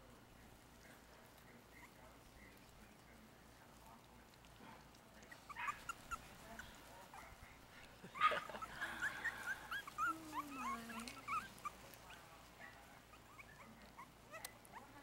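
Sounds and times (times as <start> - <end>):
puppies whimpering: 5.2 - 7.4, 8.1 - 15.0
puppy yelp: 5.3 - 7.4, 8.1 - 15.0.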